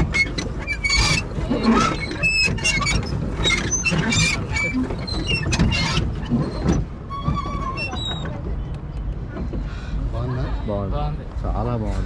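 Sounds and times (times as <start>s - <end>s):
pedal mechanism squeaks and clicks: 0.0s - 8.7s.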